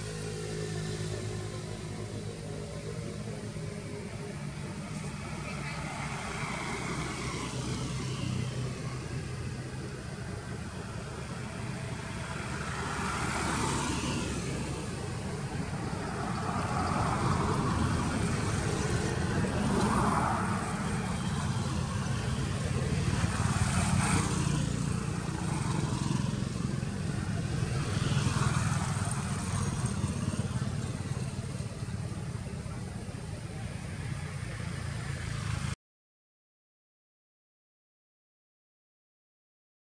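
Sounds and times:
road traffic rumble: 0.0 - 35.8
vehicles passing: 0.0 - 35.8.

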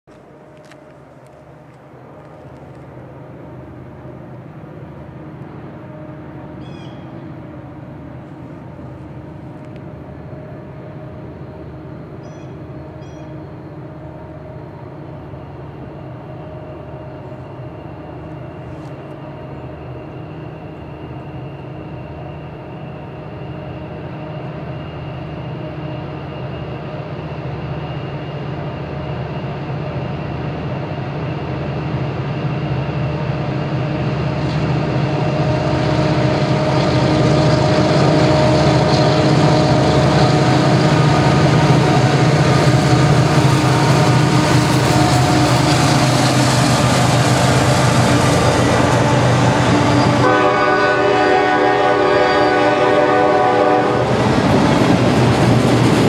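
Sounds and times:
diesel locomotive engine drone: 0.1 - 56.0.

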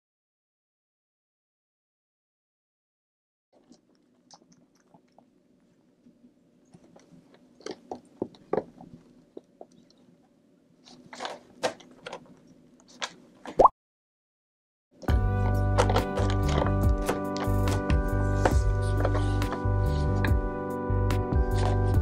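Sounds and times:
kitten licking and chewing: 3.6 - 6.1
crunching and scraping on cardboard: 10.8 - 12.3.

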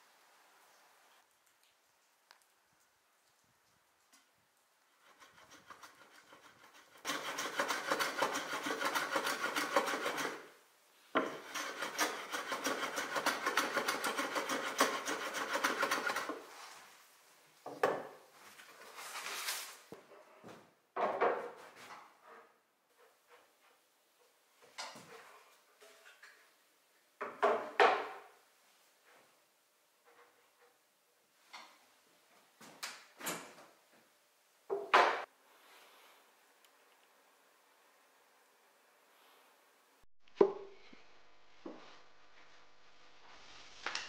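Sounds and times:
block scraping along wood: 5.0 - 10.6, 11.2 - 16.5.

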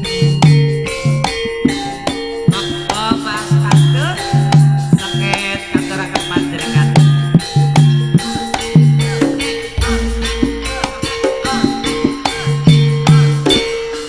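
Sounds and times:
hand drum strokes: 0.0 - 13.9
ringing bronze gong-chimes: 0.0 - 14.0
low gong tones: 2.5 - 13.7.

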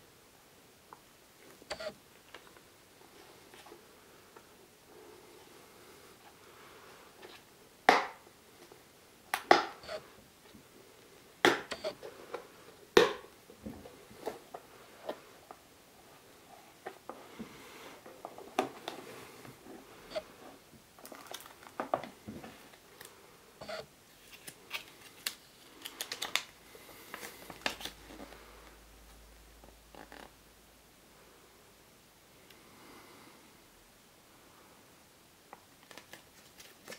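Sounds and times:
paper and plastic crinkling: 21.0 - 23.1, 24.1 - 28.4, 35.7 - 36.9.

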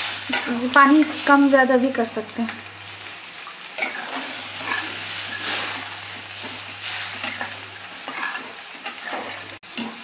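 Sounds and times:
gravy sizzling: 0.0 - 10.0
spatula scraping in a pan: 3.8 - 10.0.

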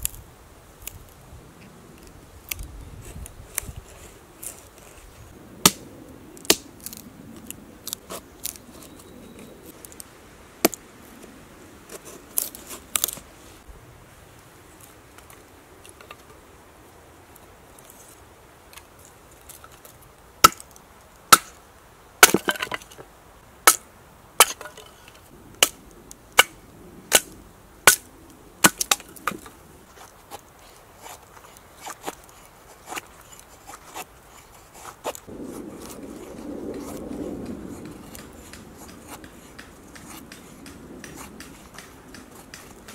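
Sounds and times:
knife cutting wood: 2.0 - 5.8, 37.7 - 42.9.

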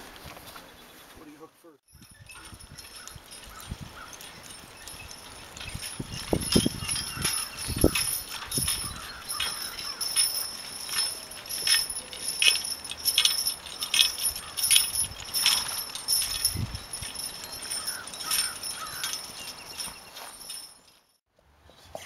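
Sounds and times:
horse trotting: 1.9 - 21.0
harness metal jingling: 1.9 - 21.2.

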